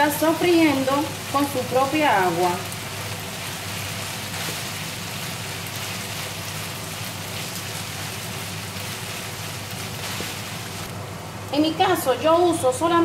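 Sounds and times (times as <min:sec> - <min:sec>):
meat and onions sizzling in a pan: 0:00.0 - 0:11.4
wooden spatula stirring: 0:02.8 - 0:10.9.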